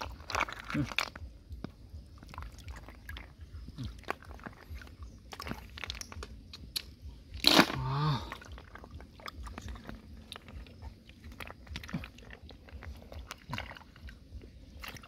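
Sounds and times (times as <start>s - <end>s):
snail shells clicking together: 0.0s - 4.6s, 5.4s - 7.8s.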